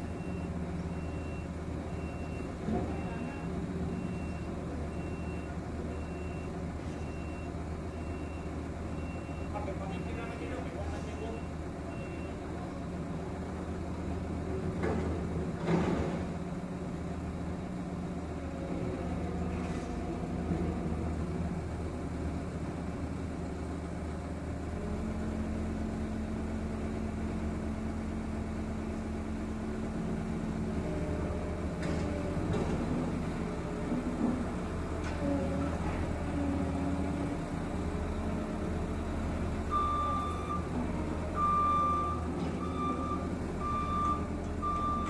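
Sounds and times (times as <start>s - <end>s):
road roller diesel engine: 0.0s - 45.0s.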